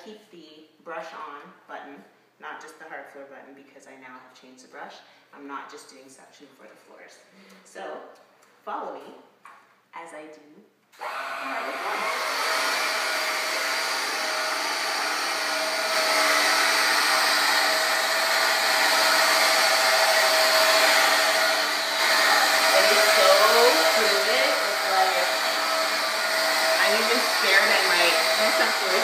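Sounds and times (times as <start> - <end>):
vacuum cleaner running: 11.0 - 29.0.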